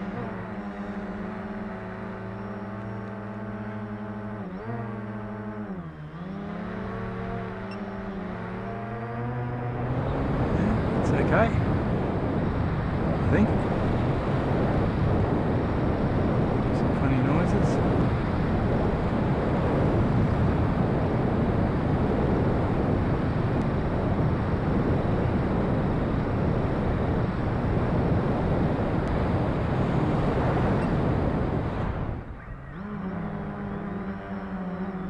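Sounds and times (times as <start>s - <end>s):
electric motor and propeller hum: 0.0s - 35.0s
wind rushing over microphone: 6.4s - 35.0s.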